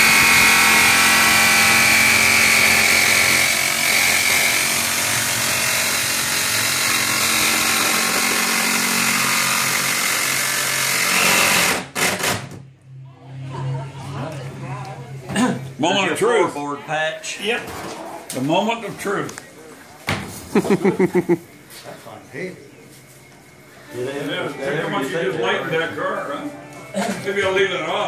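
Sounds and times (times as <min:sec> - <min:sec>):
jigsaw cutting sheet metal: 0:00.0 - 0:12.6.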